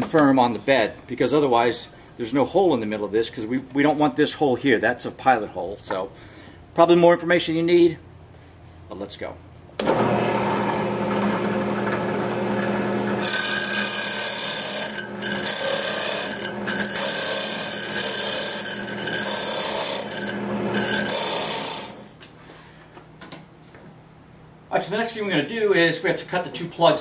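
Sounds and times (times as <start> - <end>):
drill press humming: 9.8 - 22.2
hole saw rasping into wood: 13.2 - 22.1.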